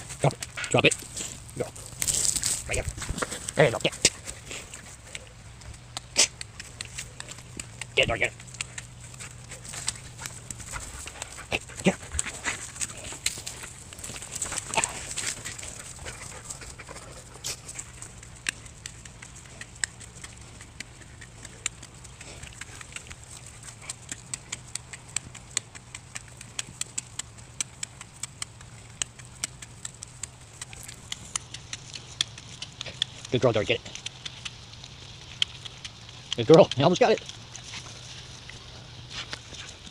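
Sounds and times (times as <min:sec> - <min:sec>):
dog chewing rope: 0:00.0 - 0:39.9.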